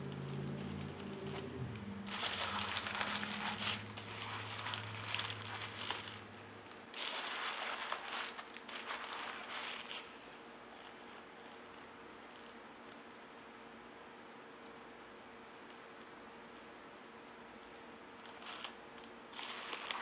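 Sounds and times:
packing material crinkling: 0.0 - 13.0, 18.2 - 20.0.

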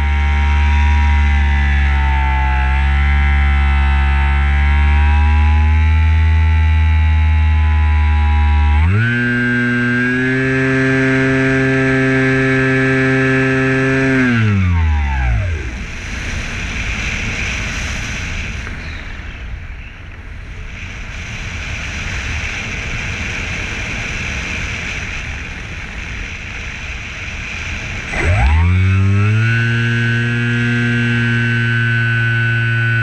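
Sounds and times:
model plane motor and propeller: 0.0 - 19.3, 20.6 - 33.0
wind rushing over airframe: 15.2 - 29.4.

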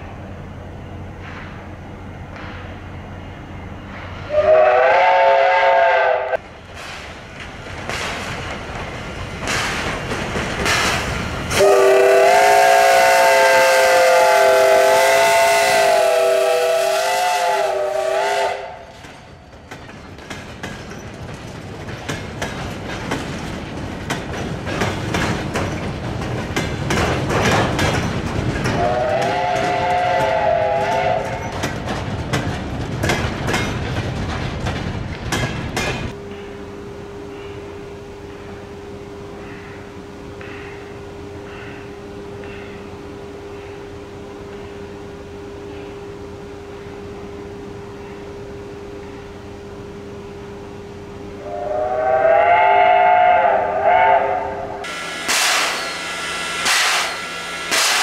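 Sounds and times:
steam whistle chord: 4.3 - 6.4, 11.5 - 18.8, 28.8 - 31.3, 51.4 - 58.0
train wheels clacking over rail joints: 6.4 - 14.2, 18.4 - 36.4, 54.8 - 58.0.

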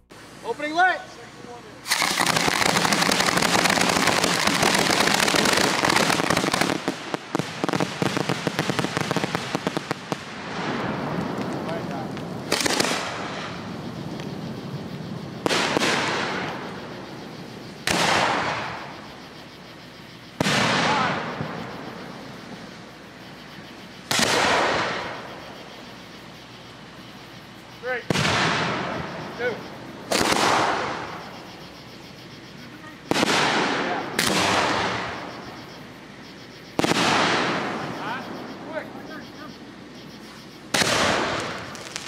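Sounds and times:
firework bangs with rolling echo: 1.8 - 19.2, 20.3 - 22.9, 24.0 - 25.6, 27.8 - 31.5, 33.0 - 35.5, 36.8 - 38.8, 40.7 - 42.0.

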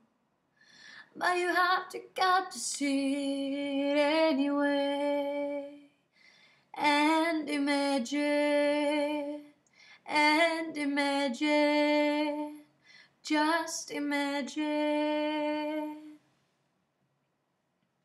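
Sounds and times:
woman singing unaccompanied: 1.0 - 5.9, 6.8 - 9.5, 10.1 - 12.6, 13.2 - 16.2.

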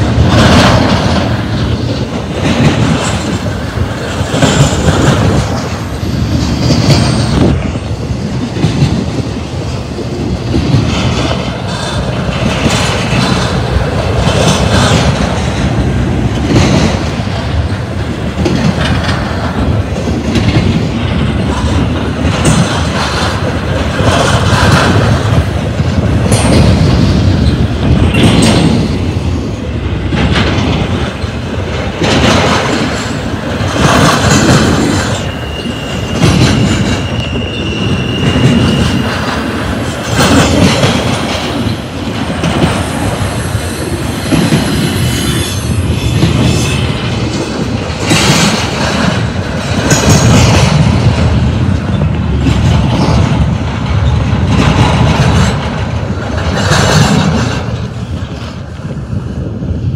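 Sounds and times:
freight train wheels rumbling: 0.0 - 59.9
high wheel squeal: 35.1 - 39.4.

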